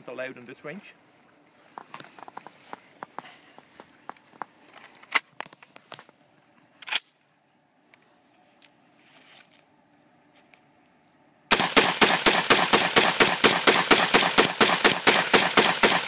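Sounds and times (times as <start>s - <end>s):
rifle shots: 11.5s - 16.0s.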